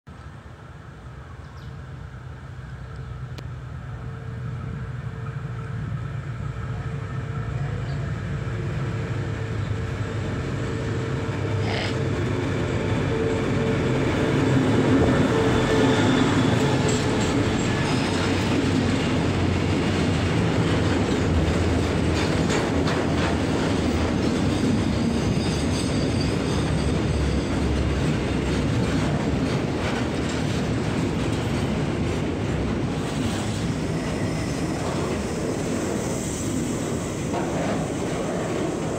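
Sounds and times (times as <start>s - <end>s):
locomotive engine hum: 0.2s - 24.8s
train wheels clattering on rails: 9.5s - 38.9s.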